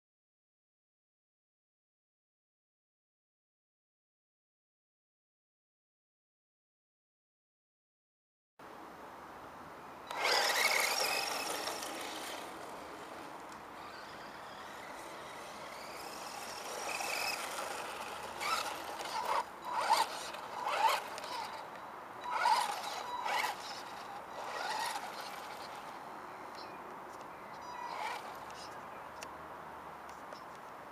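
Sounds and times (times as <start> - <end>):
tyres scrabbling over ground: 10.1 - 21.6, 22.3 - 26.0, 27.9 - 28.7
rc truck motor whining: 10.1 - 26.0, 27.6 - 28.8.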